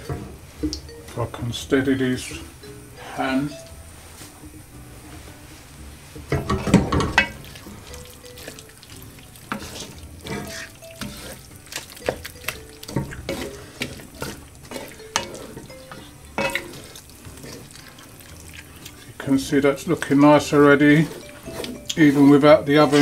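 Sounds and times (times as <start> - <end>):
food sizzling: 0.0 - 23.0
wooden spoon scraping a metal pot: 6.1 - 23.0.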